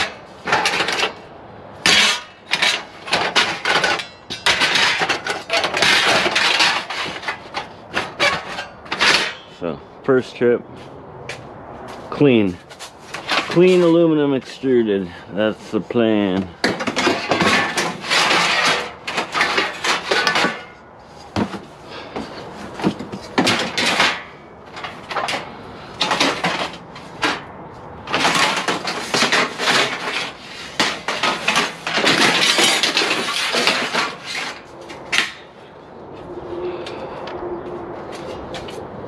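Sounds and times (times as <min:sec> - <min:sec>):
aluminum scrap clattering: 0:00.0 - 0:09.6, 0:12.7 - 0:14.2, 0:16.2 - 0:35.6.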